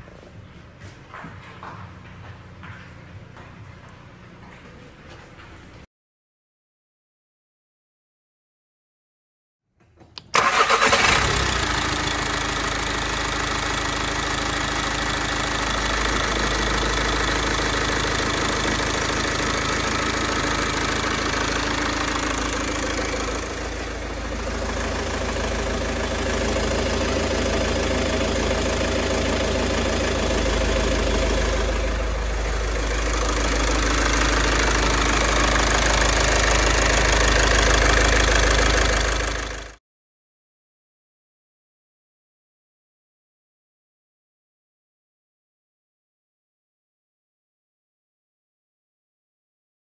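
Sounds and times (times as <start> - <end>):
diesel engine running: 10.3 - 39.8.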